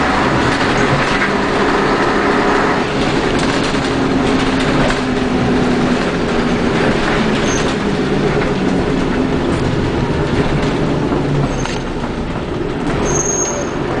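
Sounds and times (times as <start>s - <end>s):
bus diesel engine running: 0.0s - 14.0s
road noise: 0.0s - 14.0s
brief high squeak: 13.0s - 13.8s.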